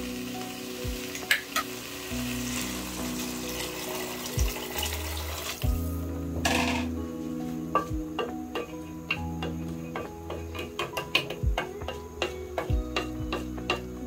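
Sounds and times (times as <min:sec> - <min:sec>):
rice sizzling in hot oil: 0:00.0 - 0:14.0
water pouring into pot: 0:01.2 - 0:05.8.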